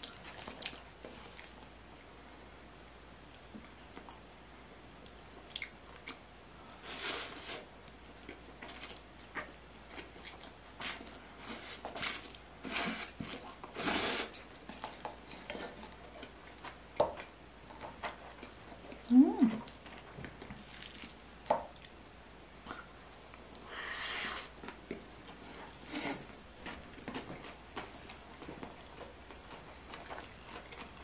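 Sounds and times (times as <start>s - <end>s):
chewing: 7.9s - 12.4s, 22.6s - 31.0s.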